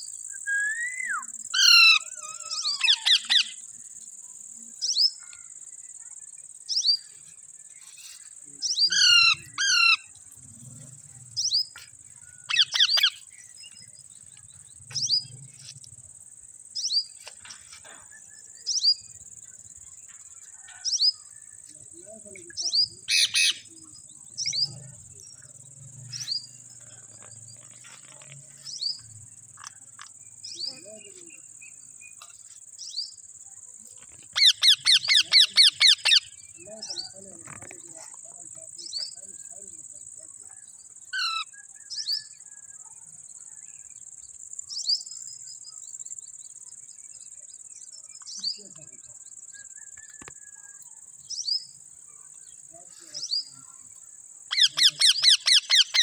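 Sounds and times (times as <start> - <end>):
parakeets calling: 1.3 - 3.6, 8.7 - 10.1, 11.4 - 13.3, 22.7 - 23.7, 34.4 - 36.4, 54.5 - 56.0.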